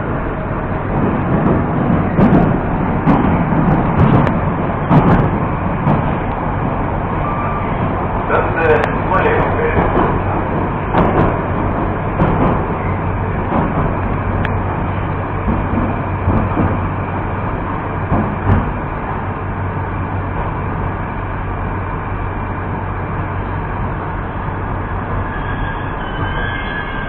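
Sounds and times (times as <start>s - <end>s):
metro train wheels on rails: 0.0s - 27.0s.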